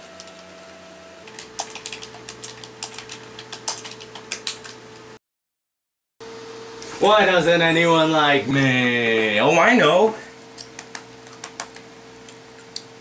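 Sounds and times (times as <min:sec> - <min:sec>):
keyboard typing: 0:01.3 - 0:04.8, 0:10.6 - 0:11.8.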